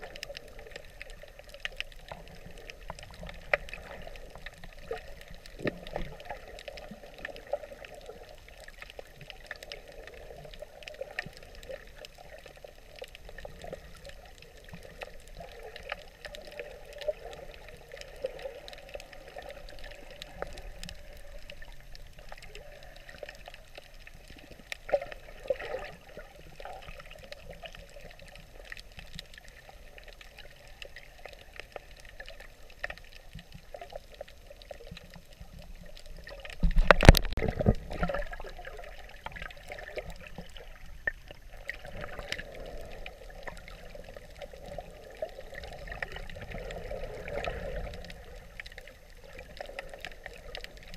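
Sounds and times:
faint clicks: 0:00.0 - 0:50.9.

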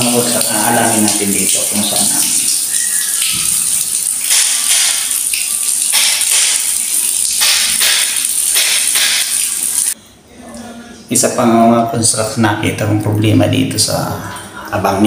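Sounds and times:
water splashing on tiled floor: 0:00.0 - 0:10.0.

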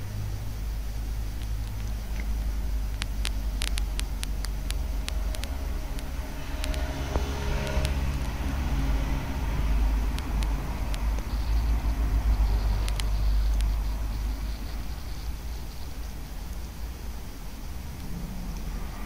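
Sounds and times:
steady low rumble: 0:00.0 - 0:19.0
kittens crunching bones: 0:01.3 - 0:15.5.

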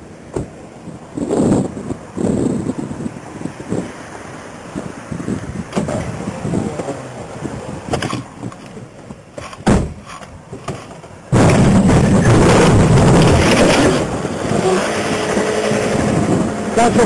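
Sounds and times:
car knock: 0:07.9 - 0:10.9
car crash: 0:09.4 - 0:15.4
low engine hum: 0:10.4 - 0:17.0.

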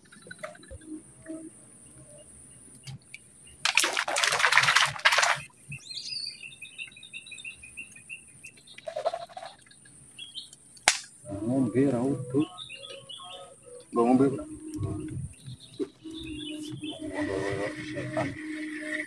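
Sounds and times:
bird chirping: 0:00.0 - 0:03.6, 0:05.3 - 0:19.0
water splashing: 0:03.7 - 0:05.5.

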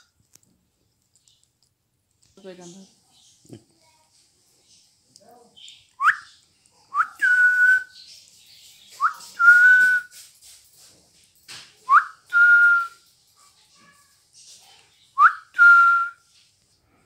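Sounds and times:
parrot whistling: 0:06.0 - 0:08.0.

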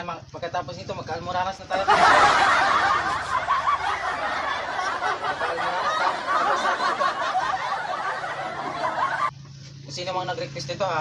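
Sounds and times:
sustained laughter: 0:01.7 - 0:09.3.

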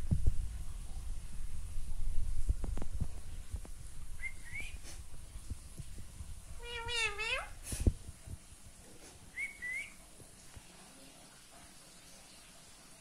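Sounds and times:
parakeet chirps: 0:06.6 - 0:07.5
parakeet wavering call: 0:06.6 - 0:07.5.

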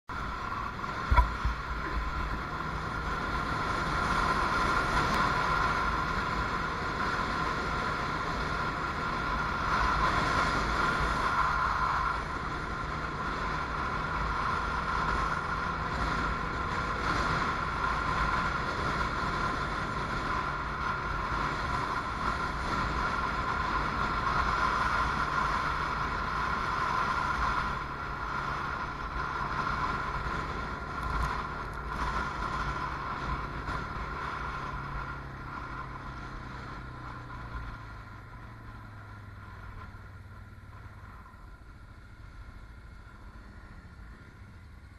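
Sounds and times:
wind buffeting microphone: 0:00.1 - 0:11.4
atv engine running: 0:00.1 - 0:44.9.

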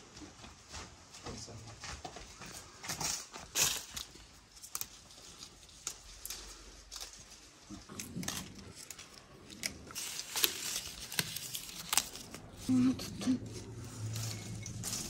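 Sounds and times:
leaves rustling: 0:03.0 - 0:15.0
leaf stems snapping: 0:03.5 - 0:12.7.

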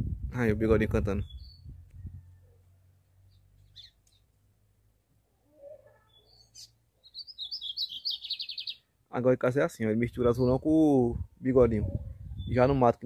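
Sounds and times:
bird singing high trill: 0:01.2 - 0:01.7, 0:03.3 - 0:04.2, 0:06.0 - 0:08.9.

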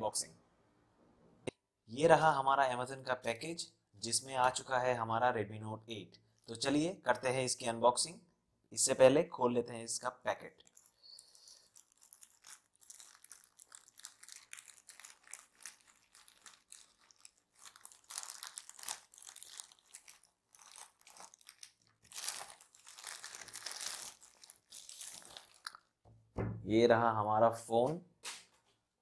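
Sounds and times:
plastic mailer crinkling: 0:10.6 - 0:25.8.

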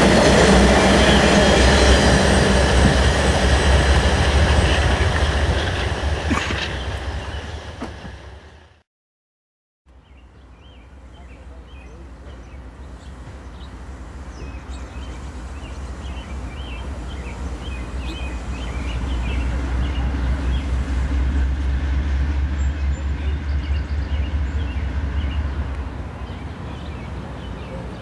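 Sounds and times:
distant diesel locomotive rumble: 0:00.0 - 0:08.8, 0:09.9 - 0:28.0
birds chirping: 0:00.3 - 0:08.1, 0:10.0 - 0:21.4, 0:22.5 - 0:28.0.

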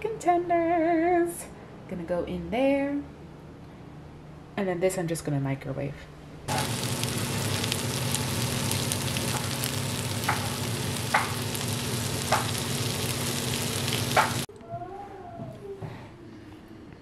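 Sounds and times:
steady low hum: 0:06.0 - 0:14.5
chicken frying in a pan: 0:06.5 - 0:14.5.

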